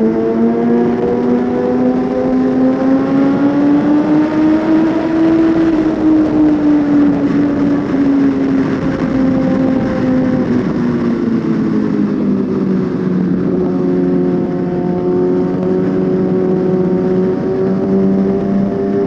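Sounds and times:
motorcycle engine running: 0.0s - 19.0s
wind noise rushing: 0.0s - 19.0s.

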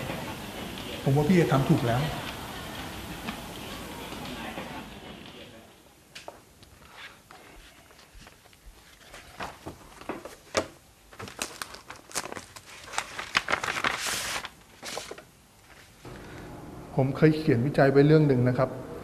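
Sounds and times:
soft footsteps: 6.1s - 10.4s
paper crinkling and rustling: 6.7s - 16.1s.

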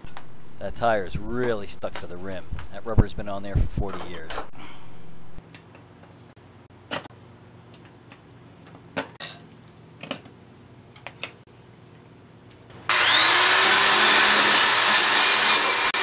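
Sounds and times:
wire brush wheel scrubbing metal: 12.9s - 16.0s.

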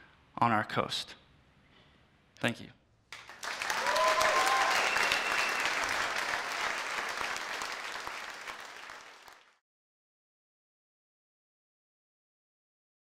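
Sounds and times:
audience applauding: 3.2s - 9.6s.

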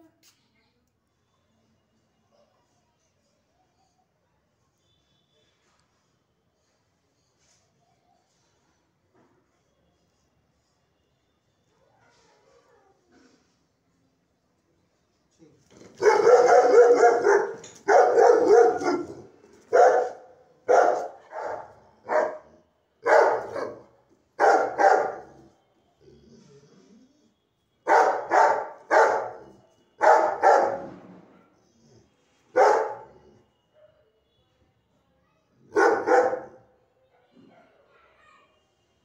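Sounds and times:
dog barking loudly: 16.0s - 25.4s, 27.9s - 30.9s, 32.6s - 33.1s, 35.7s - 36.6s.

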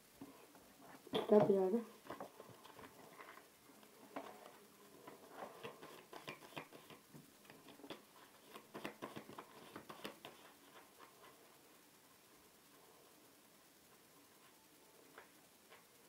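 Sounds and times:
playing cards being handled: 5.1s - 11.1s.

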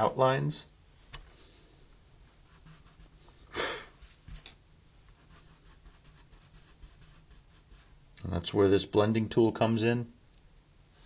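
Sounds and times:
pencil scratching on paper: 2.3s - 3.4s, 5.1s - 8.0s
loud exhale: 3.5s - 4.0s.

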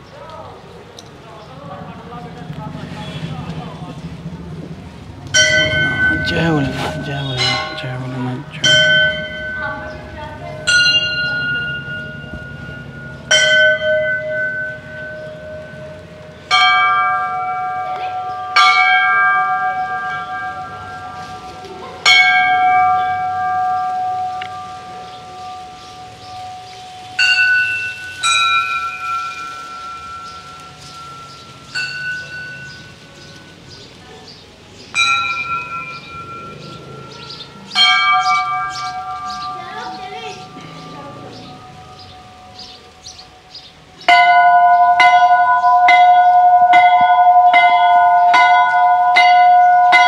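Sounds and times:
temple bells ringing: 1.0s - 50.0s.

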